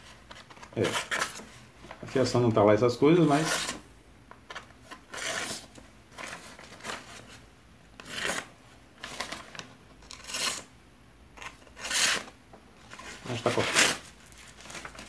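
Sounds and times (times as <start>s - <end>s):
knife slicing paper: 8.0s - 8.5s, 11.7s - 12.3s, 13.0s - 15.0s.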